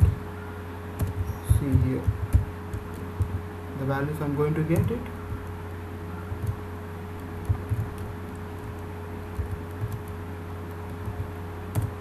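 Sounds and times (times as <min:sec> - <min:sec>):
low electrical hum: 0:00.0 - 0:12.0
keyboard keystrokes: 0:01.0 - 0:03.4, 0:04.6 - 0:05.5, 0:06.3 - 0:06.6, 0:07.2 - 0:10.2, 0:10.9 - 0:12.0.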